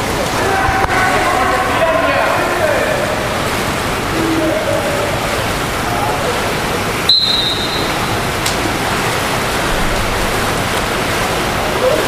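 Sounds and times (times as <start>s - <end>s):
swimmers splashing water: 0.0s - 12.0s
referee's whistle blast: 7.1s - 8.0s.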